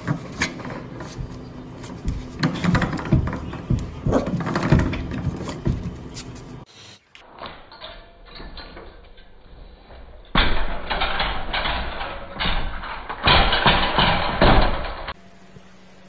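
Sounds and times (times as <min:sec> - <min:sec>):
puppy scratching wooden door: 0:00.0 - 0:06.4.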